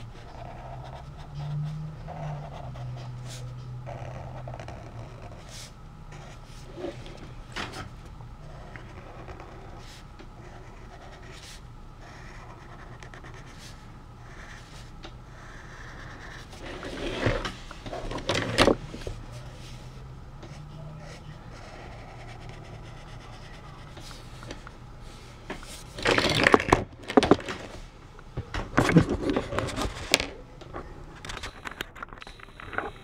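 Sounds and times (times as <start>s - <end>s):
steady low hum: 0.0s - 33.0s
marker scratching on paper: 0.2s - 7.0s, 8.6s - 17.3s, 20.5s - 24.2s
sketchbook rubbing and knocking on desk: 15.9s - 19.7s.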